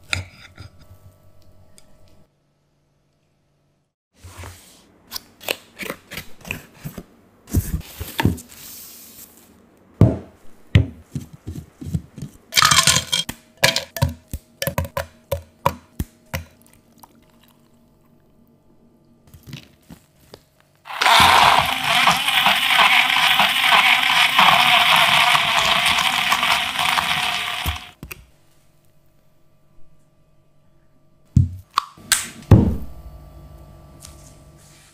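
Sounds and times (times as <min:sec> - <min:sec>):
blender whirring: 0:20.9 - 0:28.0
ice cubes into plastic cup: 0:20.9 - 0:28.0.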